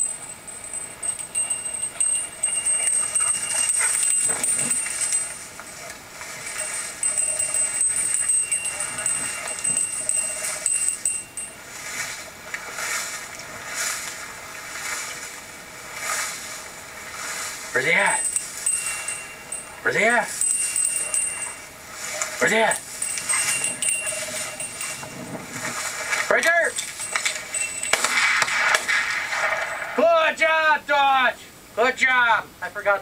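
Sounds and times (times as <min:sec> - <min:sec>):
collar bell jingling: 0:00.0 - 0:12.1, 0:17.7 - 0:30.0
footsteps through dry grass: 0:11.1 - 0:19.7, 0:20.3 - 0:28.7.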